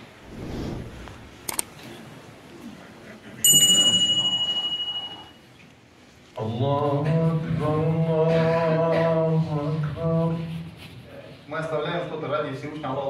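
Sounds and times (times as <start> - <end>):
bright bell ding: 3.5 - 5.4.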